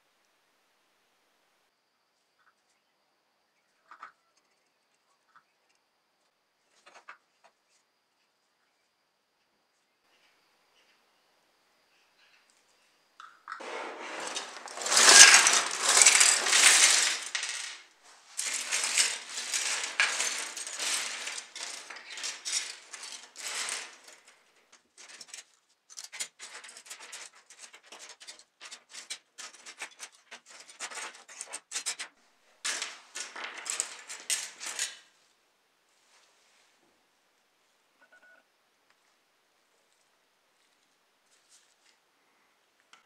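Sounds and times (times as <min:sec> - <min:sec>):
small parts clattering on a table: 0:13.2 - 0:35.1.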